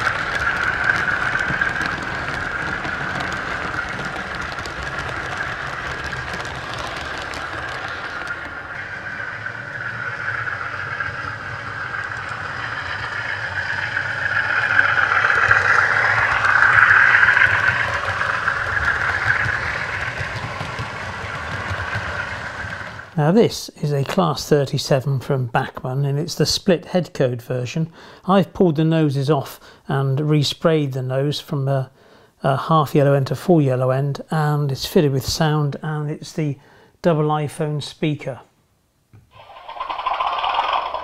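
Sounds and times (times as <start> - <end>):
wheels rumbling on track: 0.0 - 25.4, 39.2 - 41.0.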